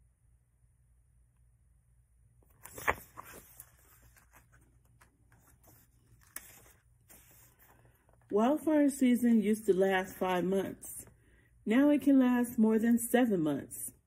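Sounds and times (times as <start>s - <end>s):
book pages rustling: 2.4s - 8.3s.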